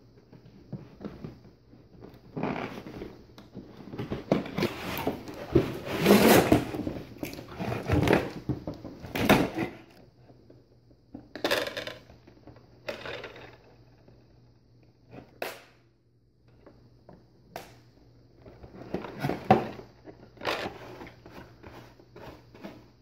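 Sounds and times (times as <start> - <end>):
cardboard and plastic rustling: 0.2 - 10.3, 18.4 - 23.0.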